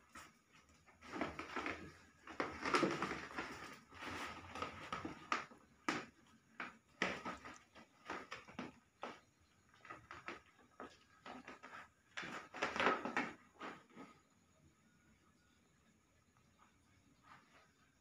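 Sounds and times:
plastic mat rustling: 0.0 - 14.2.

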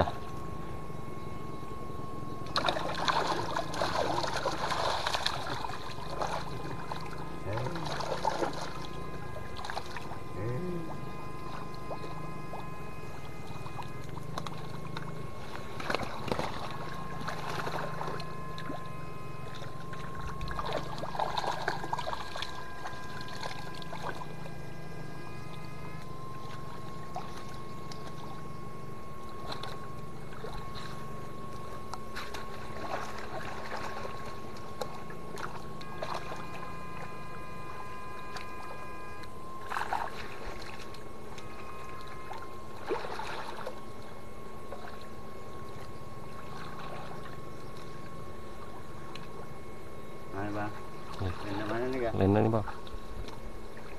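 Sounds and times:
high-pitched electric whine: 0.0 - 53.9
low electrical hum: 0.0 - 53.9
net pole splashing in water: 32.2 - 36.5, 42.3 - 43.7.

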